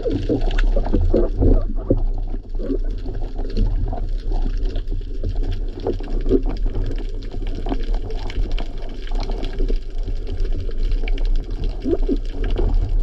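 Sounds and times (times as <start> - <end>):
low rumble of moving water: 0.0 - 13.0
small clicks and crackles: 0.0 - 13.0.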